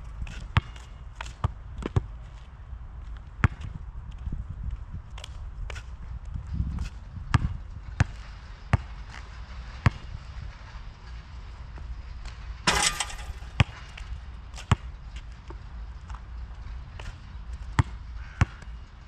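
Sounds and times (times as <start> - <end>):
basketball bouncing on asphalt: 0.3 - 2.5, 3.4 - 3.8, 12.7 - 14.9, 17.6 - 18.7
ball clattering on hoop: 12.7 - 14.1.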